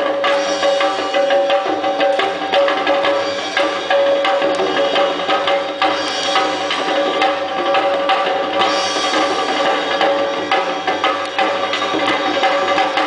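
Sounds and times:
fast driving drumming: 0.0s - 13.0s.

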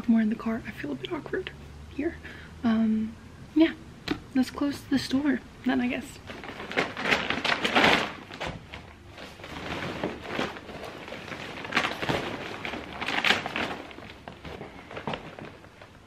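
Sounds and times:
shopping bags rustling: 6.1s - 16.0s.

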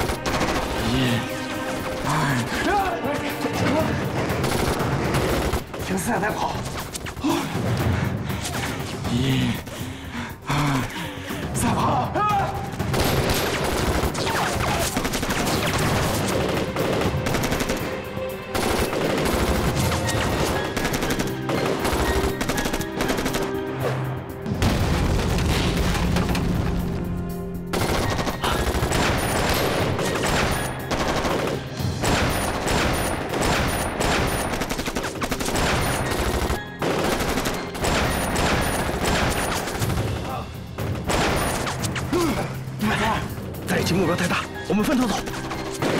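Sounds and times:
rapid gunfire: 0.0s - 2.0s, 4.2s - 6.5s, 12.8s - 23.6s, 27.7s - 41.8s
dramatic music score: 0.0s - 45.9s.

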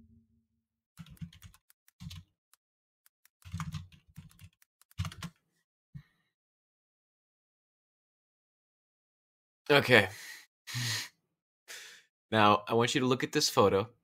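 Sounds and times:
keyboard typing: 1.0s - 2.3s, 3.0s - 5.4s.

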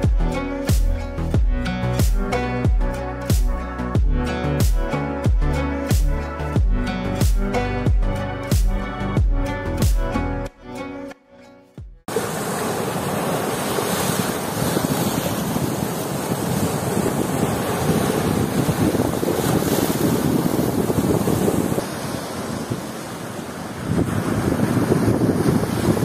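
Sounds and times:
music: 0.0s - 12.1s
waves breaking on rocky shore: 12.1s - 26.0s
wind buffeting microphone: 12.7s - 26.0s.

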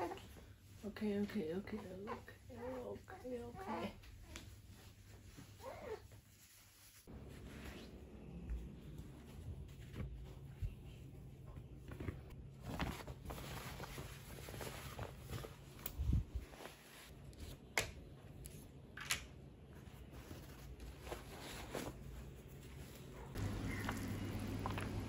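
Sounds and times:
cloth rustling: 3.7s - 17.6s.

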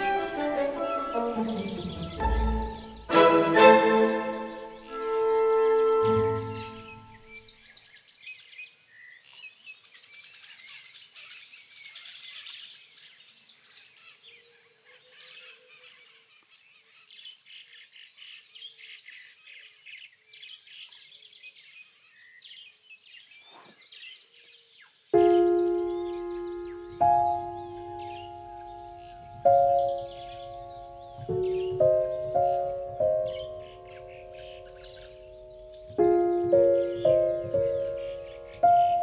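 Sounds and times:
high insect hum: 0.0s - 10.2s, 25.2s - 39.0s
birds chirping and trilling: 0.0s - 39.0s.

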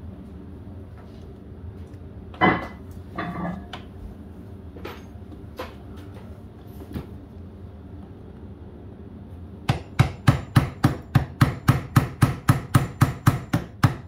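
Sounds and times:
steady low hum: 0.0s - 14.0s
metal tools clanking: 2.4s - 3.8s.

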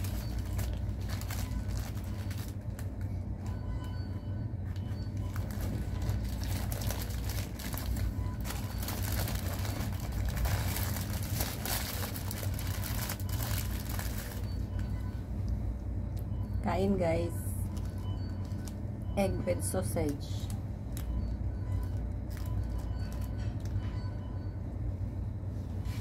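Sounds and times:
paper wrapper rustling: 0.0s - 3.0s, 4.8s - 14.8s
low background hum: 0.0s - 26.0s.

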